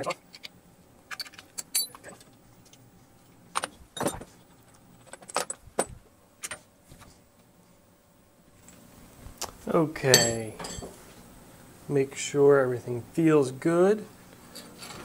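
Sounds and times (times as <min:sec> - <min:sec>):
metal clamps clinking on steel: 0:01.1 - 0:02.0, 0:10.1 - 0:10.9.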